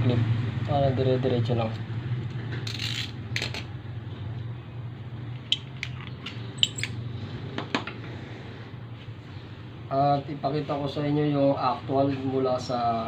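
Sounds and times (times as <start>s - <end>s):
small metallic clicks: 5.4s - 7.0s.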